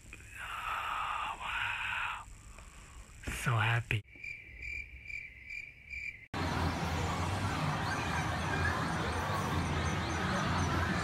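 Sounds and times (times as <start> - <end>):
pulsing cricket-like chirp: 0.0 - 6.4.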